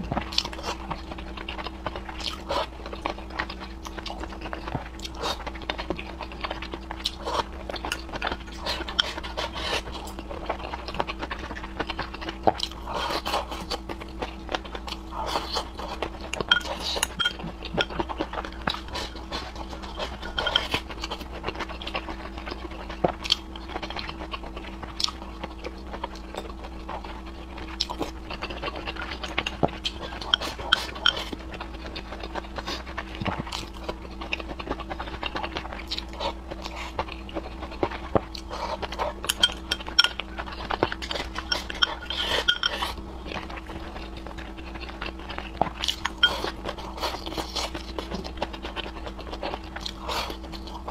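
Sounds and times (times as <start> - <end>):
faint steady hum: 0.0 - 50.9
person slurping and chewing: 0.3 - 23.4, 26.6 - 43.0.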